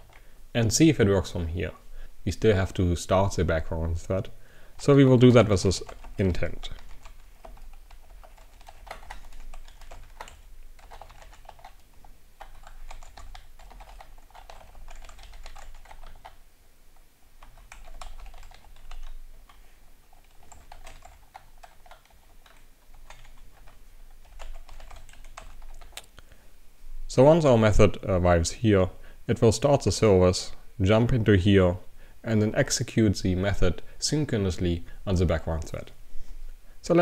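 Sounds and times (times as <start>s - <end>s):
typing on computer keyboard: 5.8s - 16.4s, 17.4s - 26.0s.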